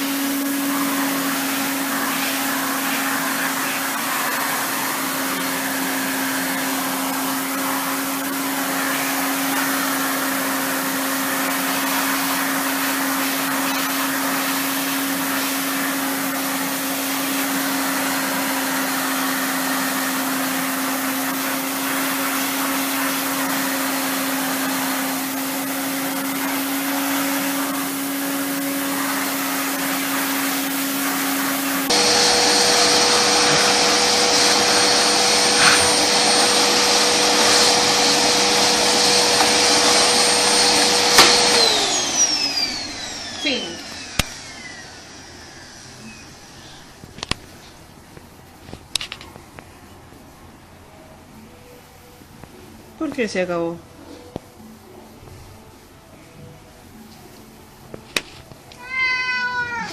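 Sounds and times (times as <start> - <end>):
louder vacuum with high whine: 0.0 - 47.4
vacuum cleaner running: 0.0 - 47.5.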